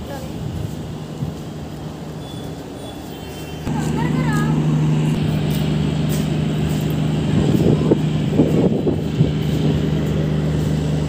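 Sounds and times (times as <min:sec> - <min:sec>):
train humming: 0:03.6 - 0:11.0.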